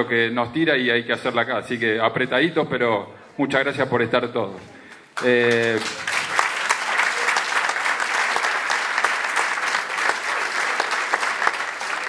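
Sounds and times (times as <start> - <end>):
crowd applauding: 5.2 - 12.0.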